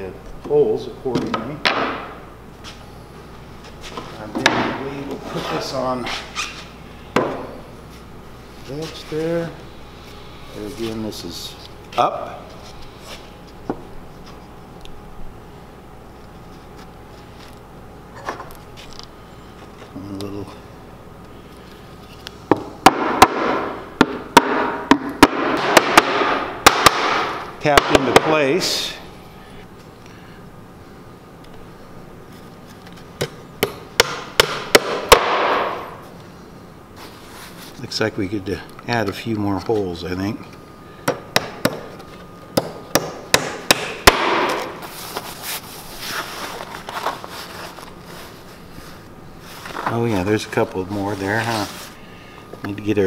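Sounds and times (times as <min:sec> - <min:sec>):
hammer strikes on panel: 0:22.5 - 0:28.3, 0:33.6 - 0:35.8, 0:42.6 - 0:44.7
scraping rustle: 0:44.8 - 0:50.1.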